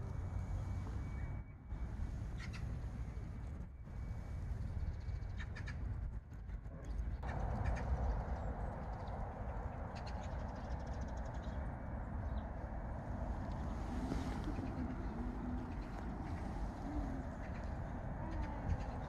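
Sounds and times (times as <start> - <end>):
low rumble: 6.6 - 19.0
harsh crow-like bird calls: 7.2 - 8.4.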